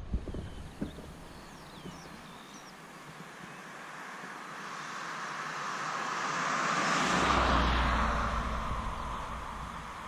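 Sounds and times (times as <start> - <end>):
car driving past: 4.6 - 10.0.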